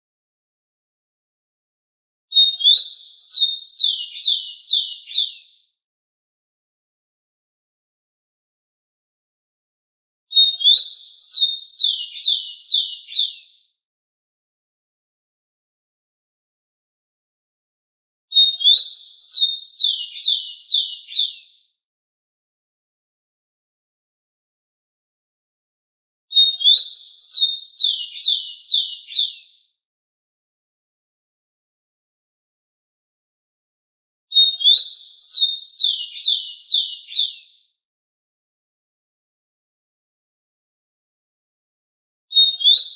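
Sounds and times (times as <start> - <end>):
sparrow singing whistled song: 2.3 - 5.7, 10.3 - 13.8, 18.3 - 21.7, 26.3 - 29.8, 34.3 - 37.8, 42.3 - 42.9.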